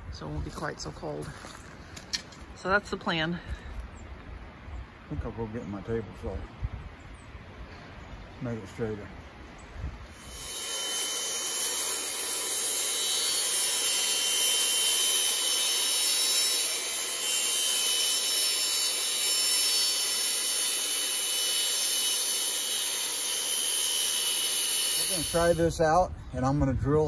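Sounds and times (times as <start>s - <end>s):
table saw cutting plastic: 10.2s - 25.6s.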